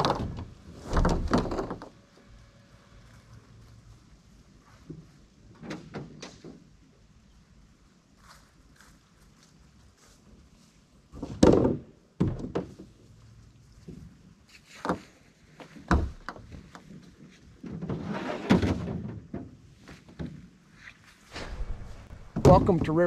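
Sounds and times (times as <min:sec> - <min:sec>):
hollow thunks and knocks: 0:11.2 - 0:12.9, 0:15.7 - 0:16.9
paddle scraping and rustling: 0:16.9 - 0:18.9.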